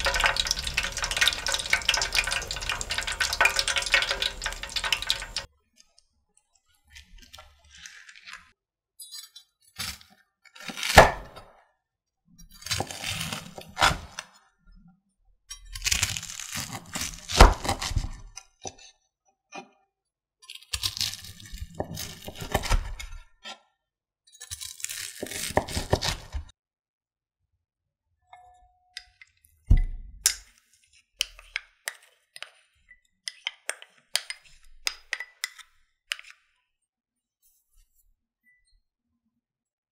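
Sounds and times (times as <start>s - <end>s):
knife crunching through crust: 12.6s - 13.9s, 15.8s - 18.2s, 20.5s - 23.0s, 24.4s - 26.5s.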